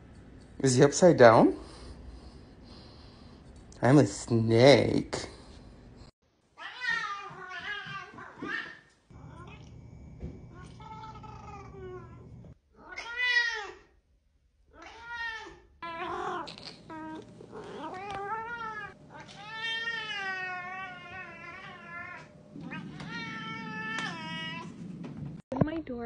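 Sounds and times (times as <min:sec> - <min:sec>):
cat meowing: 0:06.6 - 0:09.7, 0:10.5 - 0:13.8, 0:14.7 - 0:24.8.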